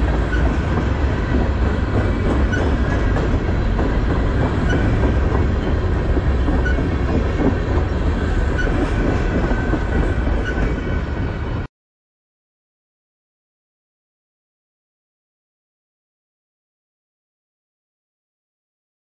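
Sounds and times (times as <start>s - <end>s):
train wheels rumbling on rails: 0.0s - 11.7s.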